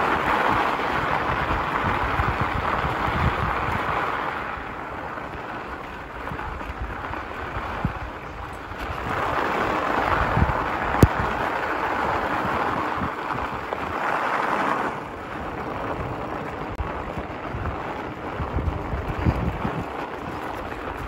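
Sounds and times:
bike tyres hissing on snow: 0:00.0 - 0:21.0
wind on microphone: 0:00.0 - 0:21.0.

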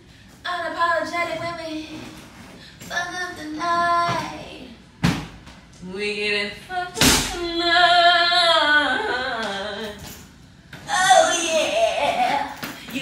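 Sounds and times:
woman singing unaccompanied: 0:05.8 - 0:10.2.

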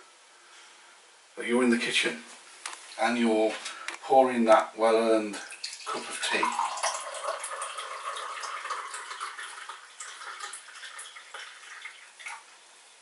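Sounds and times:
tea pouring into a mug: 0:05.4 - 0:12.4.

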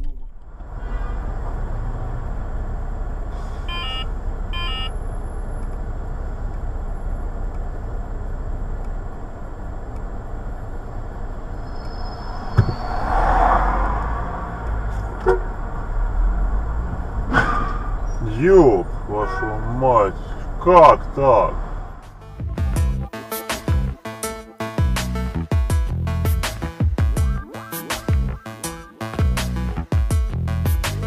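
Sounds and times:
car horn toots: 0:00.7 - 0:01.3, 0:15.1 - 0:15.6, 0:19.1 - 0:20.1
car engine idling: 0:01.4 - 0:12.9, 0:13.8 - 0:31.0.

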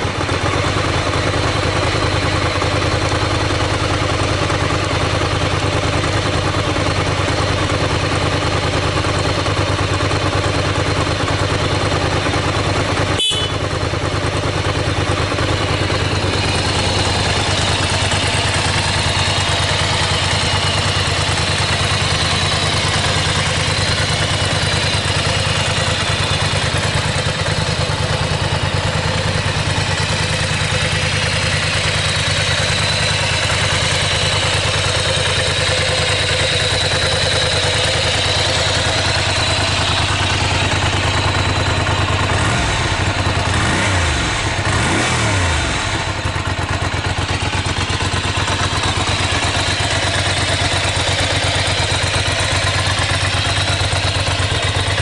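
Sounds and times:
motorcycle engine idling: 0:00.0 - 0:55.0
motorcycle throttle blips: 0:11.1 - 0:55.0.

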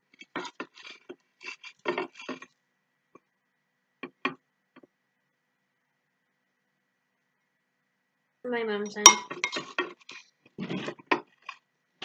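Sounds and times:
spoon stirring slime: 0:00.0 - 0:02.6, 0:08.9 - 0:11.7
spoon clinking against glass: 0:08.9 - 0:09.7.

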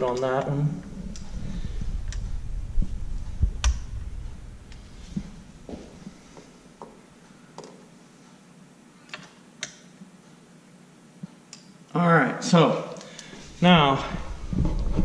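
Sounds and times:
low rumble: 0:00.0 - 0:06.2, 0:13.4 - 0:15.0.

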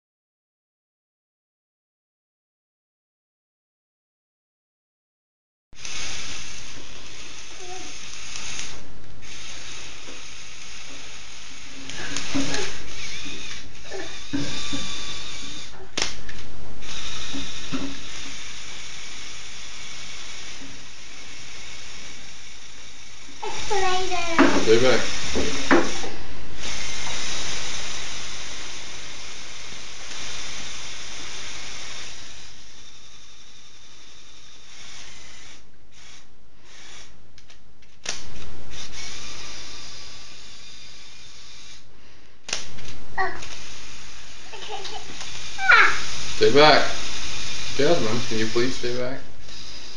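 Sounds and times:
toy excavator motors whirring: 0:05.8 - 0:27.7, 0:42.5 - 0:49.9.

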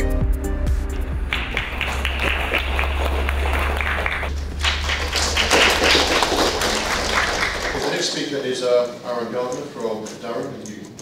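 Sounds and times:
audience applauding: 0:00.9 - 0:08.3
low steady hum: 0:01.0 - 0:09.1.

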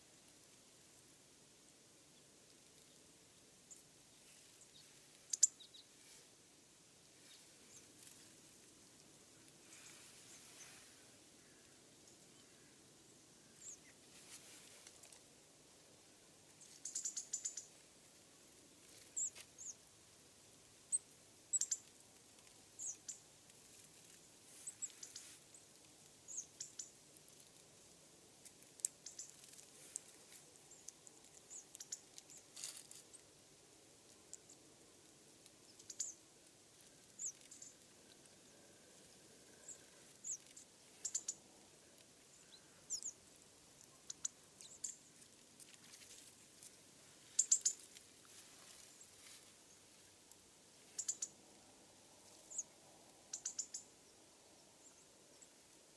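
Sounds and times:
songbirds calling: 0:02.1 - 0:06.3, 0:09.2 - 0:15.2, 0:16.5 - 0:17.9, 0:19.0 - 0:19.8, 0:20.9 - 0:22.0, 0:22.7 - 0:23.3, 0:24.6 - 0:27.0, 0:28.8 - 0:33.3, 0:35.6 - 0:45.3, 0:47.2 - 0:48.0, 0:48.8 - 0:51.4, 0:52.4 - 0:55.6.

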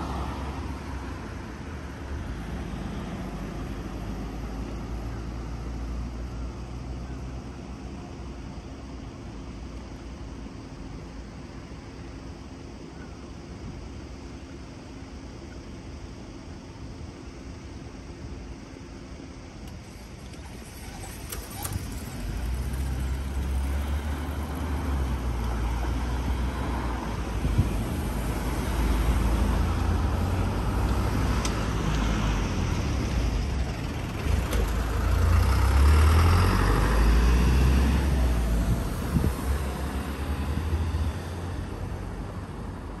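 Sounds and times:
passing traffic: 0:00.0 - 0:13.1, 0:16.1 - 0:43.0
heavy vehicle engine running: 0:19.3 - 0:43.0.

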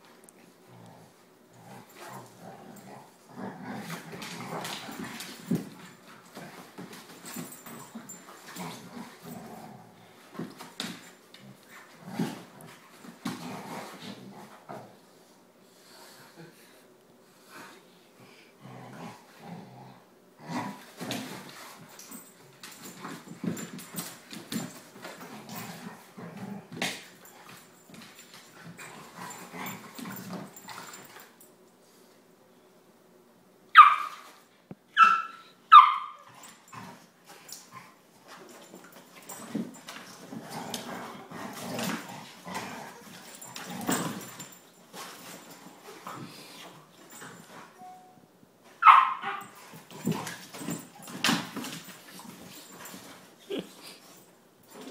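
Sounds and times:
dogs play-growling: 0:00.4 - 0:31.5, 0:36.2 - 0:47.8, 0:49.3 - 0:54.9
dogs scuffling: 0:03.6 - 0:14.8, 0:20.8 - 0:31.5, 0:36.3 - 0:47.8, 0:48.7 - 0:54.9.

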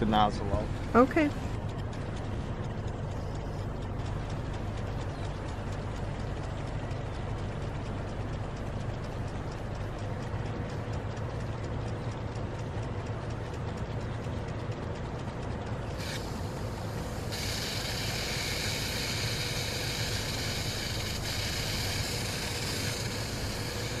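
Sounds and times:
low rumble: 0:00.0 - 0:17.2
sprinkler ticking: 0:00.0 - 0:24.0
water jet hissing: 0:15.9 - 0:24.0.

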